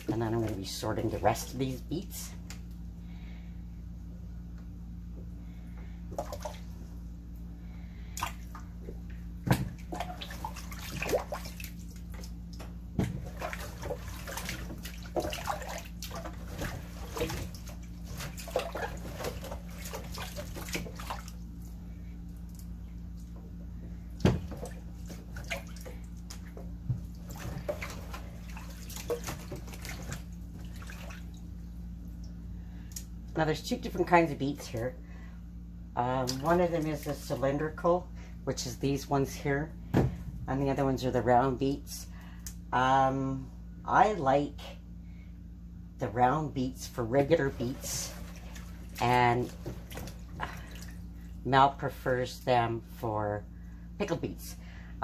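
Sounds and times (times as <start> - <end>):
hands splashing water in sink: 8.1 - 21.7, 24.1 - 31.5, 47.5 - 51.1.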